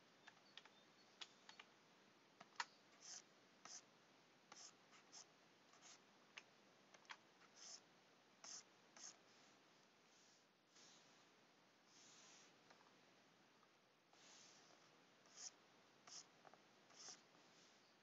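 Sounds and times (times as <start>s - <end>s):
stylus scratching on tablet: 3.0s - 3.9s, 4.5s - 6.0s, 7.5s - 7.8s, 8.4s - 9.2s, 14.2s - 17.8s.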